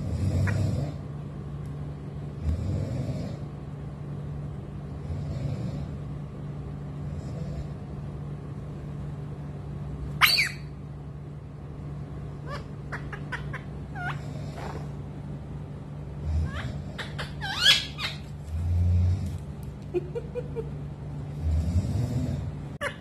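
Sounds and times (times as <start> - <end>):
parakeet screech: 10.2 - 10.7, 16.5 - 18.2
parakeet chirps: 10.2 - 10.8, 12.4 - 14.9, 16.4 - 18.3.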